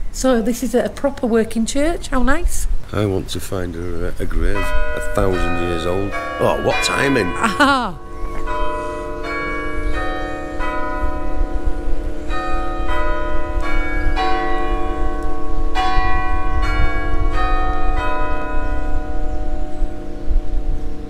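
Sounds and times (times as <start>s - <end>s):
church bells ringing: 4.4s - 21.0s.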